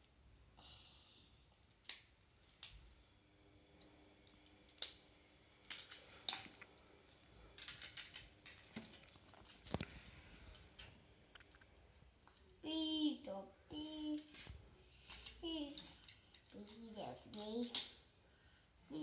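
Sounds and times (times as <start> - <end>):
plastic bricks clicking and rattling: 7.6 - 9.9.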